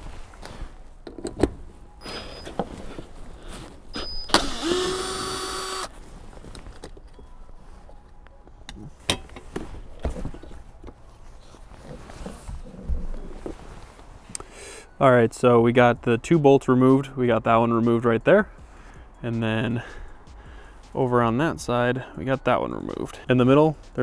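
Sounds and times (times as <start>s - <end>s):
cordless drill running: 4.3s - 5.9s.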